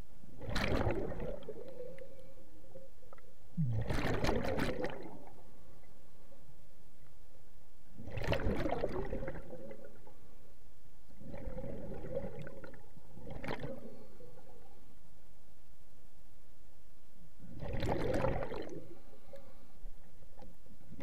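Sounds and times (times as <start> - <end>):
underwater exhaled bubbles: 0.3 - 2.9, 3.6 - 5.5, 8.0 - 10.1, 11.2 - 14.8, 17.5 - 19.1.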